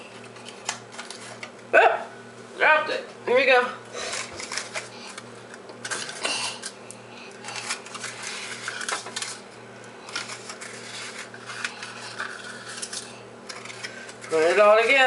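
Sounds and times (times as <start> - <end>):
paper liners rustling in metal tin: 4.0 - 5.2, 5.8 - 6.8, 7.4 - 9.4, 10.0 - 15.0.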